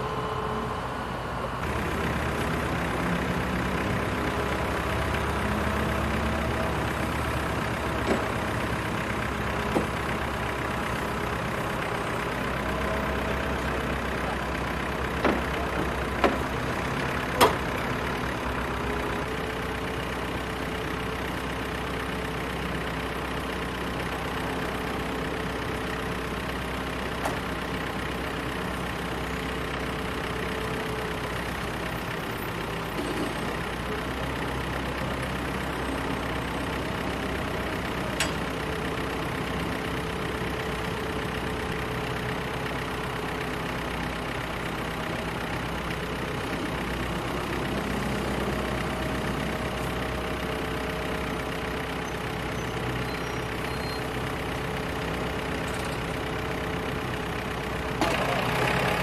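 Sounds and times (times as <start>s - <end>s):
truck engine idling: 0.0s - 59.0s.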